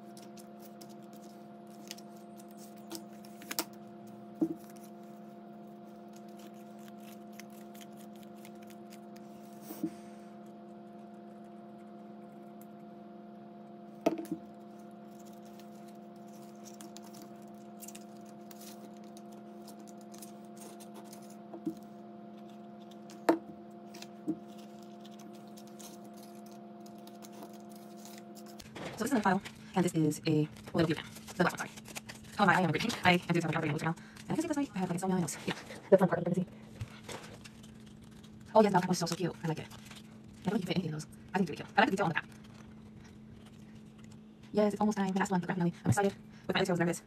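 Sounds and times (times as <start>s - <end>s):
steady hum: 0.0s - 47.0s
paper tapping and crinkling: 15.1s - 34.6s.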